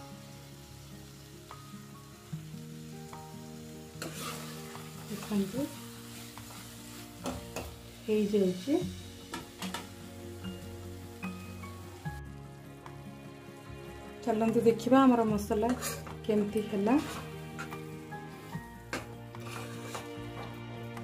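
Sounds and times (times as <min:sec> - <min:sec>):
masala sizzling: 0:00.0 - 0:21.0
spatula scraping pan: 0:04.0 - 0:07.7, 0:15.6 - 0:20.5.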